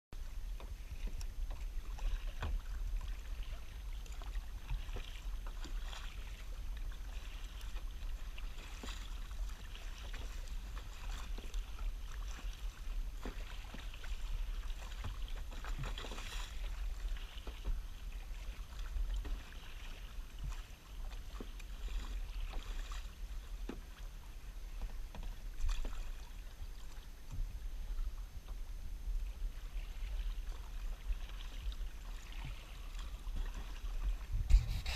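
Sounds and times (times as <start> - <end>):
paddle strokes splashing: 0.2 - 34.9
water lapping against hull: 0.2 - 34.9.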